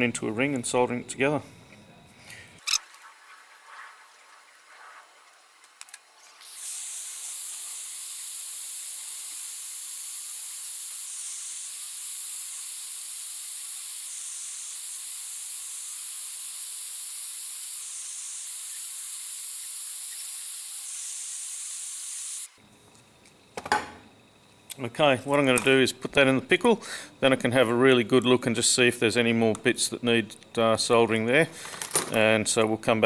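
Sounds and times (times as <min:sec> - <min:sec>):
gas torch flame hissing: 0:06.4 - 0:22.6.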